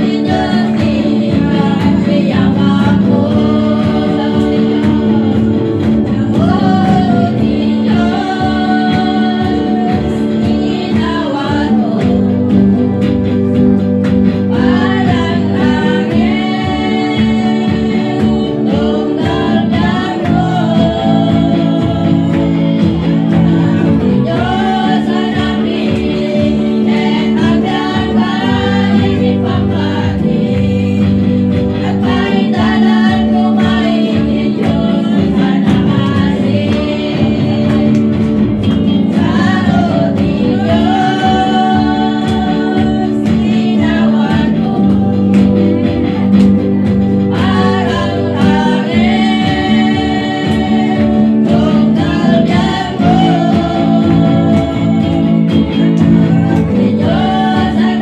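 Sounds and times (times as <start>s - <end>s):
electric guitar: 0.0s - 58.0s
women singing gospel song: 0.0s - 58.0s.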